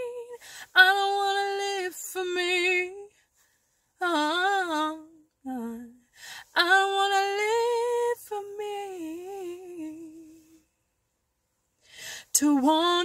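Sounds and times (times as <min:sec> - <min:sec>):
woman singing a cappella: 0:00.0 - 0:03.2, 0:03.9 - 0:10.7, 0:12.2 - 0:13.0
singer breathing: 0:06.1 - 0:06.5, 0:11.8 - 0:12.4.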